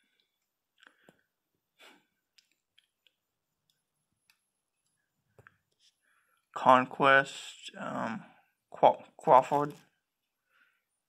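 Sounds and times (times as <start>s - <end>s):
soft breath: 5.8s - 6.5s, 10.4s - 11.0s.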